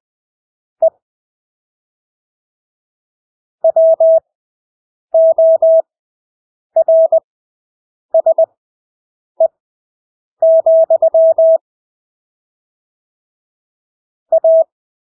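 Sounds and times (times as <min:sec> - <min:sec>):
morse code beeps: 0:03.6 - 0:04.2, 0:05.2 - 0:05.8, 0:06.8 - 0:07.2, 0:10.4 - 0:11.6, 0:14.3 - 0:14.7.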